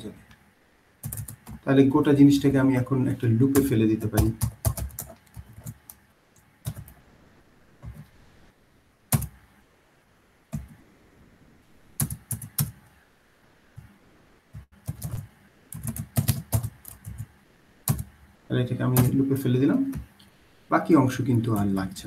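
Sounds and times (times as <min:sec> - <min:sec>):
computer keyboard typing: 0:01.0 - 0:01.6, 0:03.5 - 0:06.0, 0:06.6 - 0:07.0, 0:09.1 - 0:09.4, 0:12.0 - 0:12.8, 0:14.6 - 0:18.1, 0:18.9 - 0:20.0.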